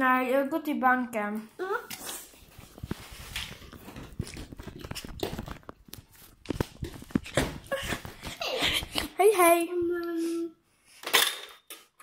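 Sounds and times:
phone rustling and knocking: 2.8s - 8.4s.

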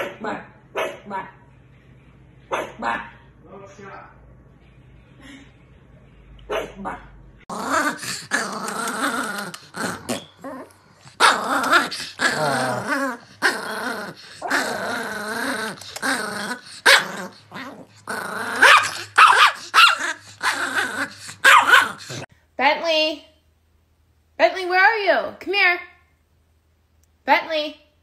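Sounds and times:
dogs growling and barking: 6.5s - 22.3s.

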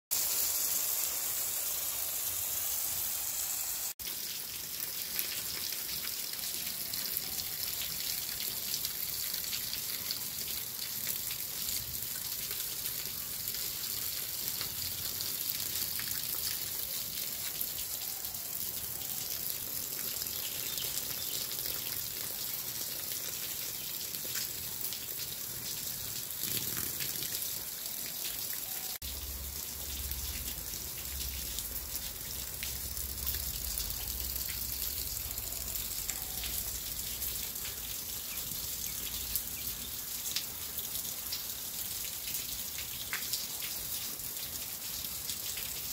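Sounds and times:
impact sprinkler spraying water: 0.1s - 4.0s
water dripping off a roof: 4.0s - 45.9s.

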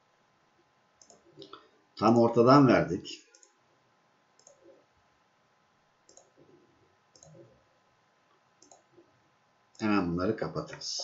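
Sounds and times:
faint computer mouse clicks: 1.0s - 1.6s, 3.3s - 3.6s, 4.4s - 4.7s, 6.1s - 6.4s, 7.1s - 7.5s, 8.6s - 8.9s.

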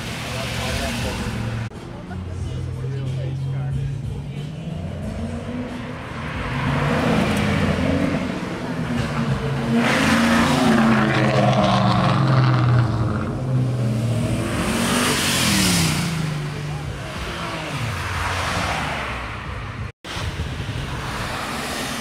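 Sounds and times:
car engines revving away: 0.0s - 22.0s
car passing close: 4.6s - 22.0s.

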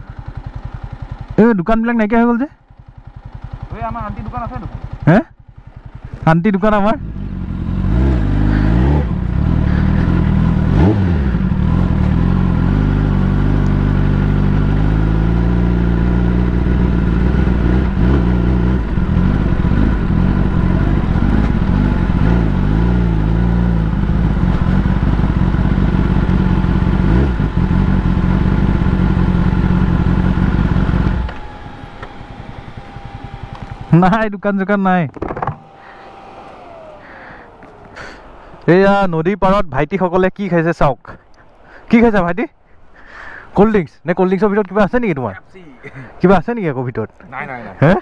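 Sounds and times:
motorcycle engine revving: 0.0s - 38.8s.

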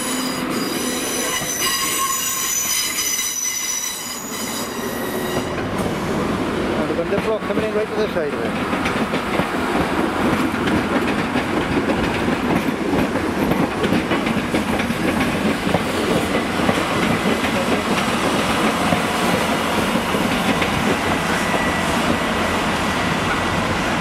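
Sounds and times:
faint high squeal: 0.0s - 5.6s
train passing: 0.0s - 24.0s
wheels clicking over rail joints: 6.9s - 21.2s.

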